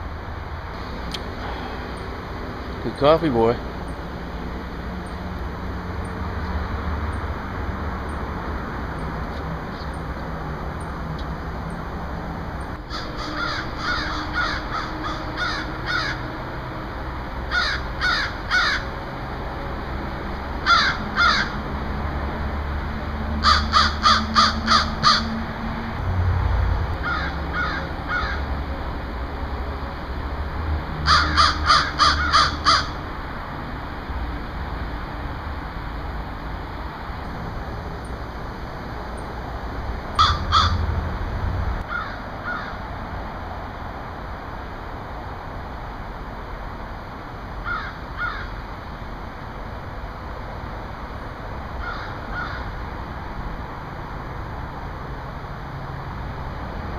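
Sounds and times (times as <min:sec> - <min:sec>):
low steady rumble: 0:00.0 - 0:56.9
crows cawing: 0:12.9 - 0:16.3, 0:17.5 - 0:18.9, 0:20.6 - 0:21.6, 0:23.4 - 0:25.4, 0:27.0 - 0:28.5, 0:31.0 - 0:33.0, 0:40.2 - 0:40.9, 0:41.8 - 0:42.8, 0:47.6 - 0:48.6, 0:51.8 - 0:52.8.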